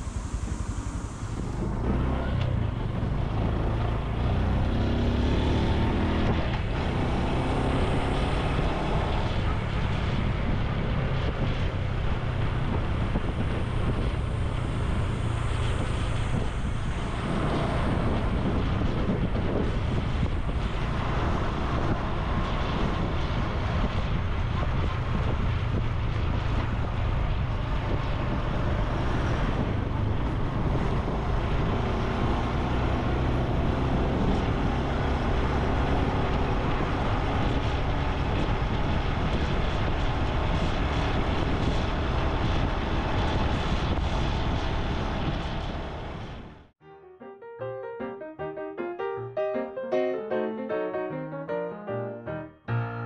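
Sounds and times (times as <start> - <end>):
motorcycle engine running: 0.0 - 28.9.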